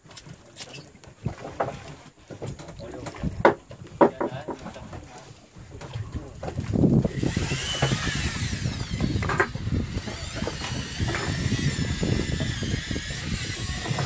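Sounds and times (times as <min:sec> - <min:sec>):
low wind rumble on microphone: 0:04.6 - 0:14.0
fishing reel whirring: 0:07.0 - 0:14.0.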